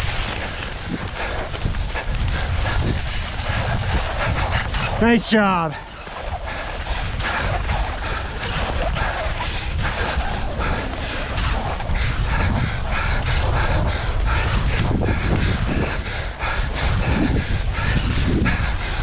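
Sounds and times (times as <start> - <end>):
skis scraping on snow: 0.0 - 12.3
wind rumbling over microphone: 0.0 - 19.0.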